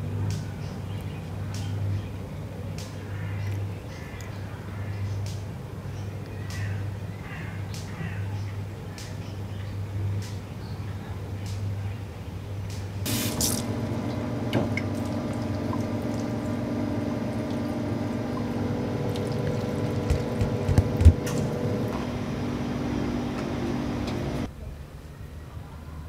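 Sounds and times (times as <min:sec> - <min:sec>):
machine hum: 0:13.0 - 0:24.5
water pouring from jug: 0:13.1 - 0:20.4.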